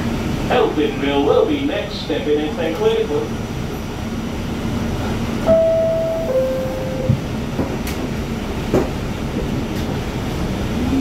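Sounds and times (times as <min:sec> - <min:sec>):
two-tone door chime: 0:05.5 - 0:07.2.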